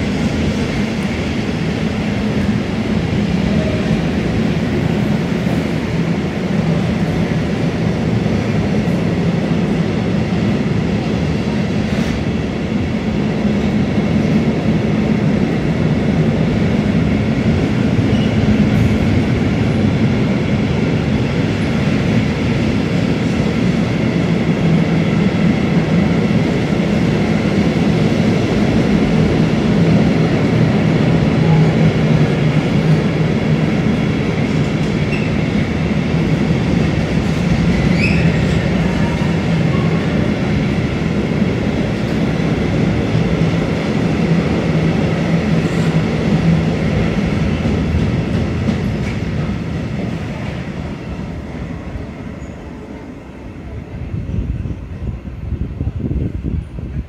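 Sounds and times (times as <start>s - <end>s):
train wheels rumbling on rails: 0.0s - 57.0s.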